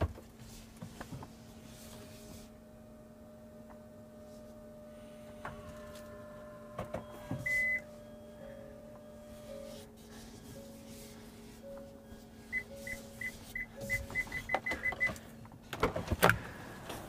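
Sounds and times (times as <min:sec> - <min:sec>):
synthetic pedestrian warning hum: 0:02.6 - 0:15.2
short high beep: 0:12.5 - 0:15.2.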